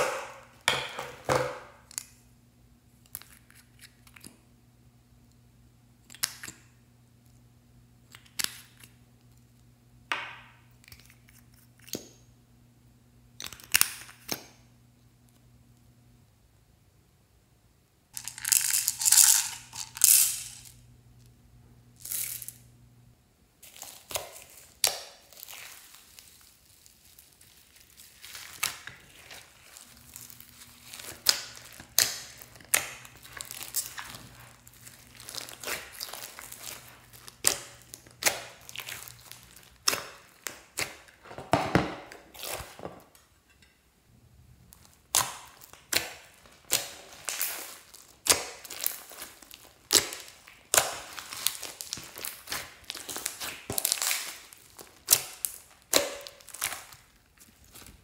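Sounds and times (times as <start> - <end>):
hands squishing sticky slime: 23.6 - 41.2, 44.6 - 58.0.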